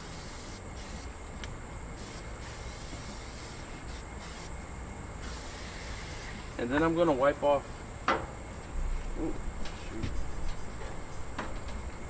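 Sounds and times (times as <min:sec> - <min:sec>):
oil sizzling on hot grill: 0:00.0 - 0:01.1, 0:02.0 - 0:04.5, 0:05.2 - 0:06.5
aerosol spray hissing: 0:00.0 - 0:01.2, 0:02.0 - 0:04.6, 0:05.2 - 0:06.6.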